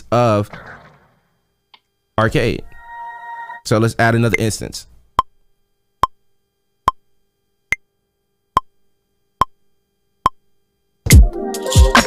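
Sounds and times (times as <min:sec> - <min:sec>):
kick drum beat: 0:11.1 - 0:12.0.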